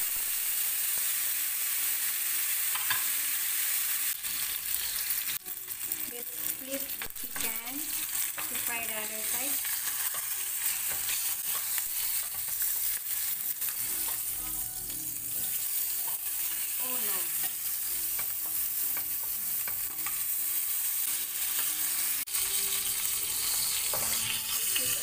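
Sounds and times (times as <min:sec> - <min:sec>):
chicken sizzling in oil: 0:00.0 - 0:25.0
metal spatula clicking and scraping: 0:07.0 - 0:14.4.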